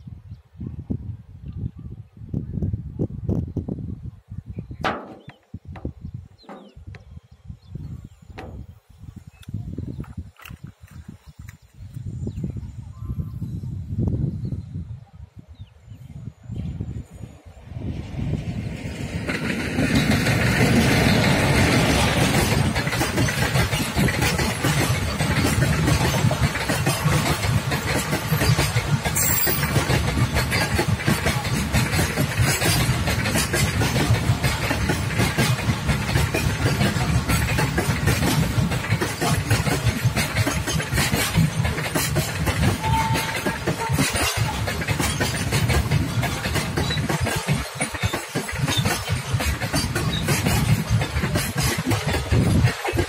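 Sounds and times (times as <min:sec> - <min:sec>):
electric locomotive rushing past: 0:16.6 - 0:53.0
goods wagons rumbling: 0:17.5 - 0:53.0
wheels clicking over rails: 0:18.6 - 0:53.0.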